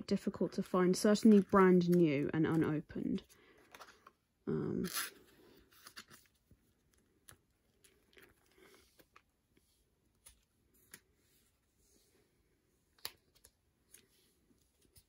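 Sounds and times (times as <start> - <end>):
photo cards rustling: 0.1 - 12.2
plastic binder page turned: 0.2 - 4.2, 4.9 - 9.3.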